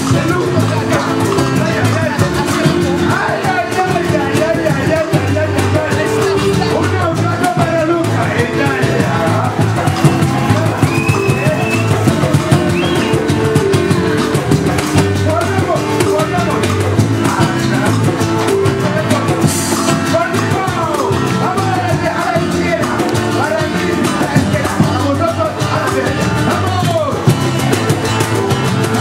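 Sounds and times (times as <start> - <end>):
live band playing: 0.0 - 29.0
voices singing: 0.0 - 29.0.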